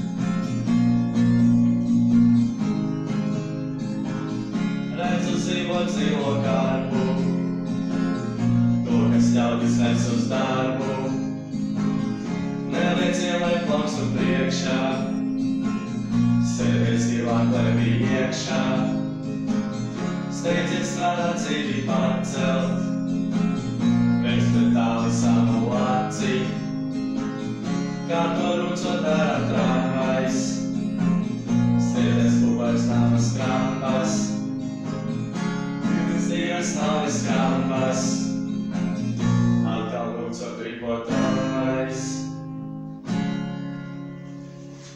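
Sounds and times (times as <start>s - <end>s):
acoustic guitar strumming: 0.0s - 44.9s
boys singing: 4.9s - 7.4s, 8.8s - 11.3s, 12.7s - 15.3s, 16.4s - 19.2s, 20.3s - 23.0s, 24.2s - 26.7s, 28.1s - 30.8s, 31.8s - 34.5s, 35.8s - 38.4s, 39.6s - 42.3s.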